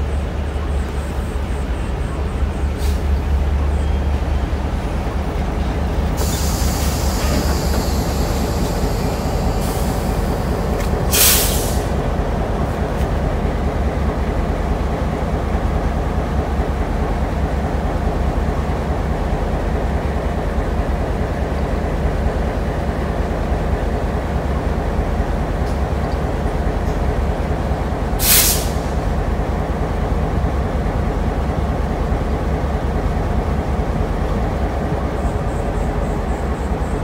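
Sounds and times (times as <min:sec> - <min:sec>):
diesel locomotive rumbling: 0:00.0 - 0:37.0
air hiss: 0:06.1 - 0:12.0, 0:28.2 - 0:29.0.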